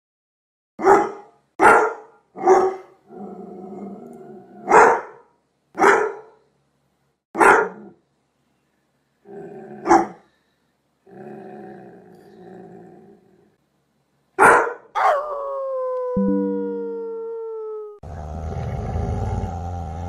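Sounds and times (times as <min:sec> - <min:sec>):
dog barking: 0:00.8 - 0:03.0, 0:04.6 - 0:06.4, 0:07.4 - 0:08.0, 0:09.8 - 0:10.3, 0:14.4 - 0:15.3
dog growling: 0:03.1 - 0:04.7, 0:09.3 - 0:09.9, 0:11.1 - 0:13.6, 0:18.0 - 0:20.0.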